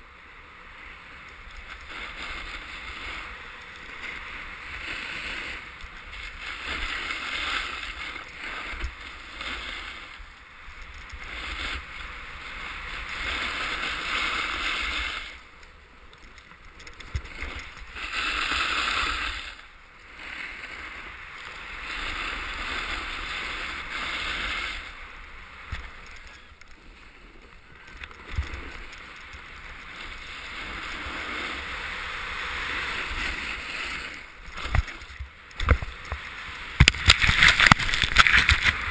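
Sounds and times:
skis scraping over snow: 0.3s - 38.9s
wind rumble on microphone: 27.9s - 38.9s.

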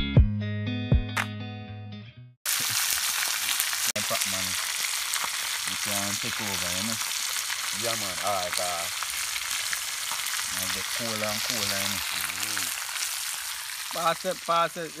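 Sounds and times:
fish sizzling in hot oil: 2.5s - 15.0s.

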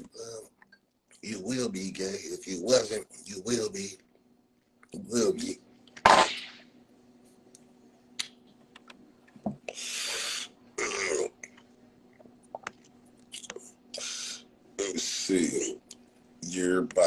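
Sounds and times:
sharp puff: 6.0s - 6.7s
man breathing while smoking: 9.7s - 10.5s
long breathy hiss: 9.7s - 10.6s, 13.9s - 15.4s.

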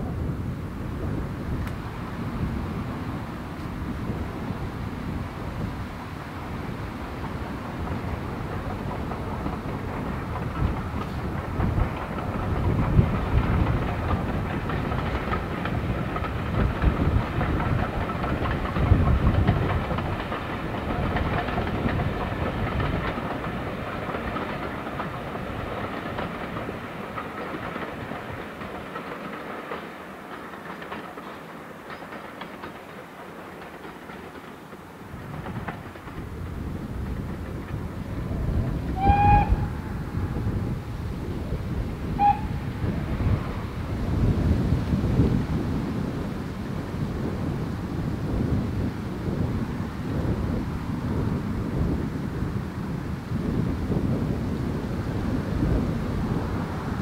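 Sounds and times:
steam train passing: 0.0s - 57.0s
shrill whistle call: 39.0s - 39.6s.

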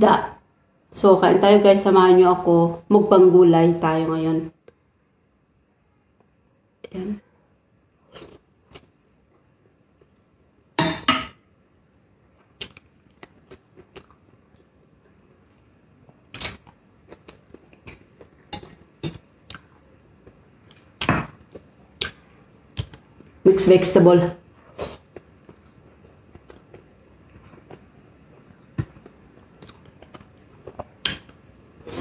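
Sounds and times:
person chewing: 8.0s - 10.2s, 12.4s - 14.8s, 16.0s - 23.4s, 24.6s - 32.0s.

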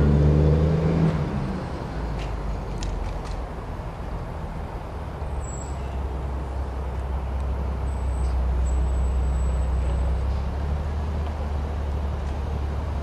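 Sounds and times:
diesel locomotive rumble: 0.0s - 13.0s.

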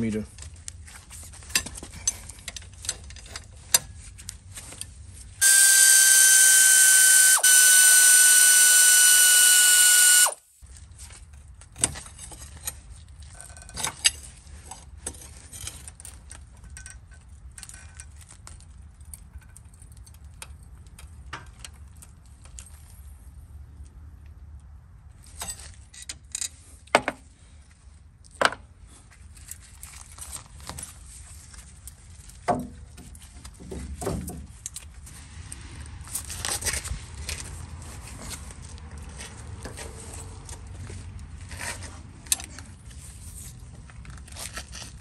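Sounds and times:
loud steady whine: 5.4s - 10.4s.

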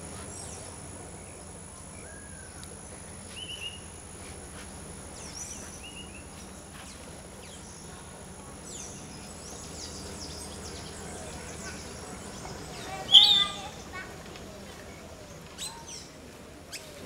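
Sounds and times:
bird chirps: 8.7s - 14.0s
short falling bird calls: 12.7s - 14.1s.

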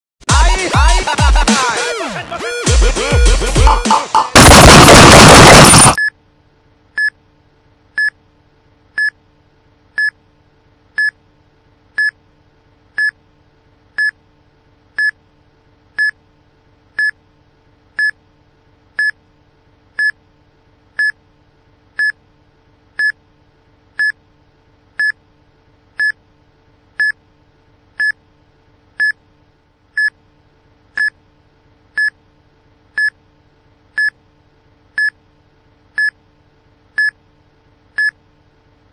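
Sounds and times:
countdown timer beeping: 2.5s - 6.0s
loud noisy burst: 3.8s - 6.0s.

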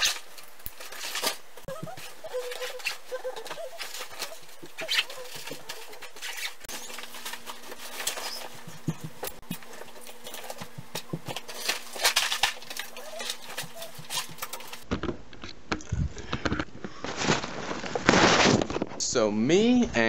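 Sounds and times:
fabric rustling and scraping: 17.0s - 19.0s.

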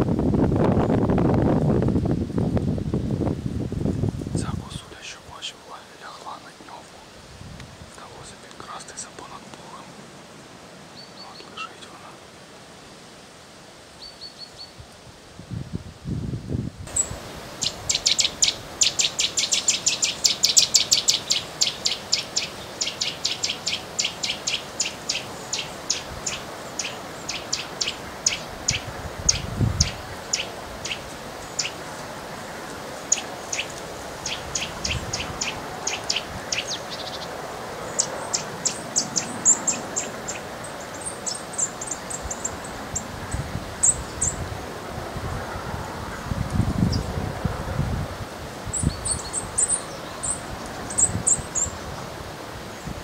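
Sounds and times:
thin high bird chirps: 16.9s - 31.8s.

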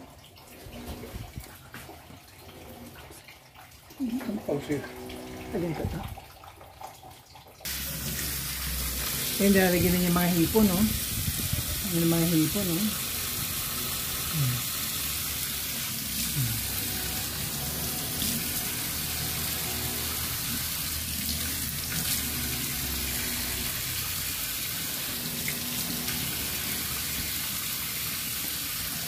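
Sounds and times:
tap water splashing into sink: 3.1s - 11.8s, 17.9s - 29.0s.

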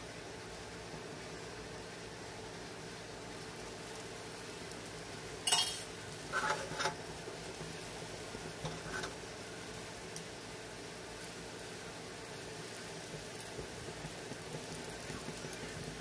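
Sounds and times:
low hiss: 0.0s - 16.0s
metal kitchenware clinking: 5.4s - 6.9s.

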